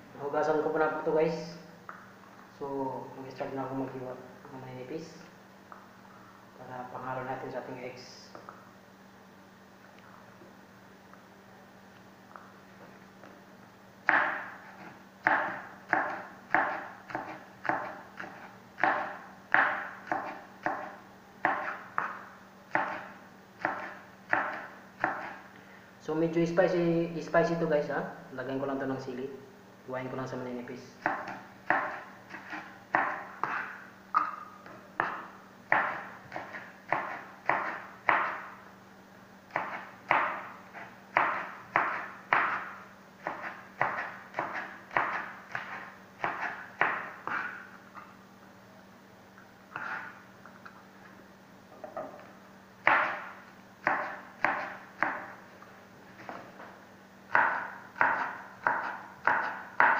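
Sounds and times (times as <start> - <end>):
faint steady hum: 0.0 - 59.9
knife chopping on plastic board: 15.2 - 25.3, 35.0 - 38.4, 39.5 - 40.4, 41.1 - 47.6, 52.8 - 55.3, 57.3 - 59.9.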